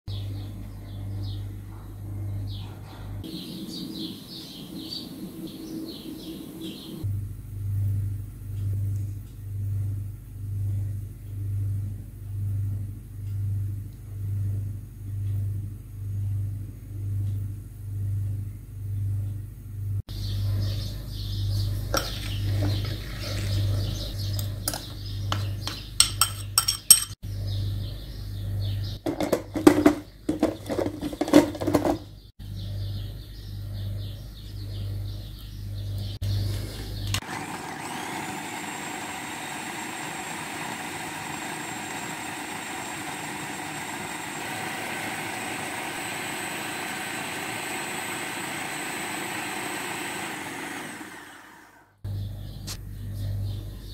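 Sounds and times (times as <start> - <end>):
metal spoon scraping glass bowl: 26.0 - 27.2.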